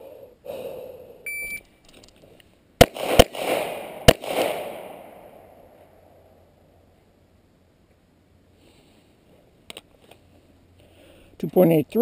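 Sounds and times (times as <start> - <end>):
shot timer beep: 1.3 - 1.6
pistol shots echoing: 2.8 - 5.5.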